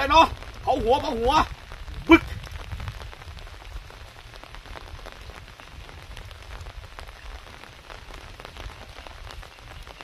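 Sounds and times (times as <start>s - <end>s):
rain drops pattering: 0.0s - 10.0s.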